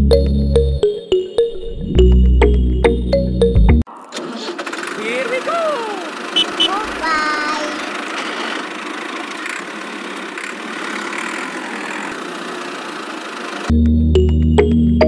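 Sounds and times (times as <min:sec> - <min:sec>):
toy tractor engine running: 0:03.9 - 0:13.7.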